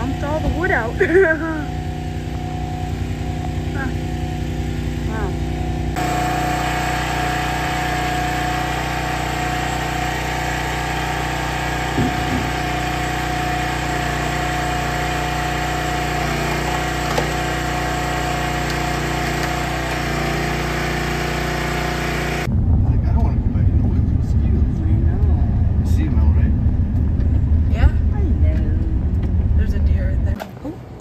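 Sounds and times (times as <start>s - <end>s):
small gas engine running: 0.0s - 22.5s.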